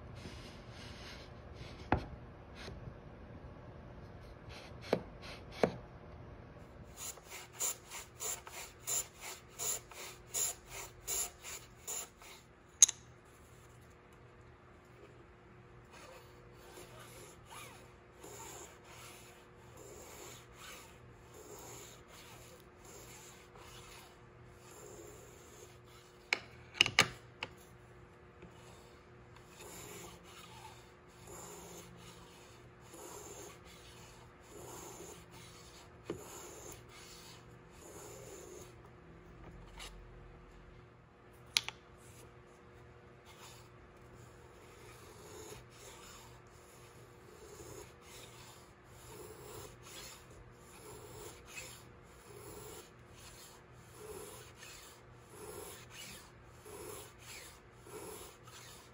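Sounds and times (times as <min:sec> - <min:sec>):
hand plane shaving wood: 0:49.2 - 0:58.9.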